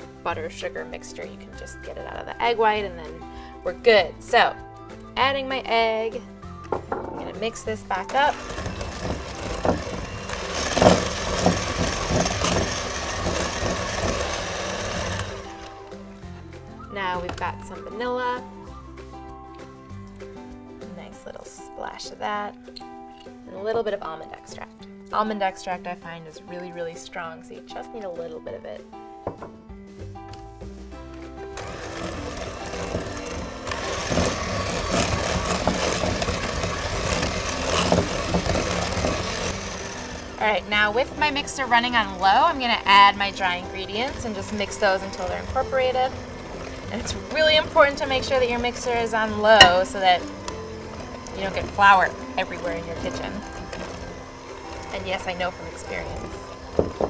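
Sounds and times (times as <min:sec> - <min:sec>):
electric hand mixer running: 0:08.0 - 0:16.5, 0:31.4 - 0:57.0.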